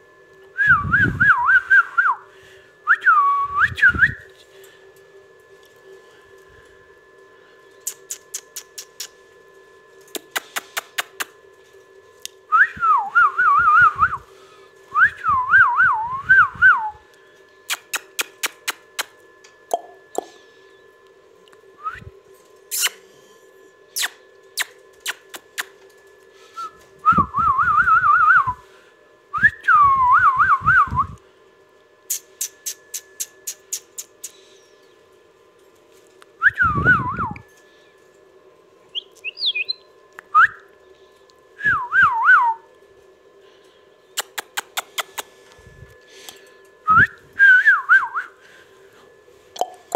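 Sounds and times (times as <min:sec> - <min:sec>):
faint steady hum: 0:00.0 - 0:49.9
parakeet whistling: 0:38.9 - 0:40.5.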